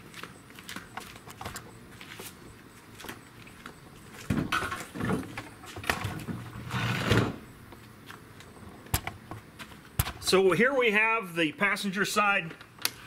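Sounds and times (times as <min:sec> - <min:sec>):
footsteps: 0:00.0 - 0:07.0, 0:09.4 - 0:10.1.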